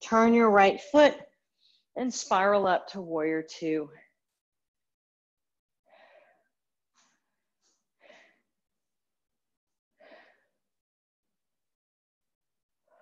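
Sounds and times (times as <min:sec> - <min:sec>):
soft breathing: 0:05.9 - 0:07.2, 0:07.8 - 0:08.6.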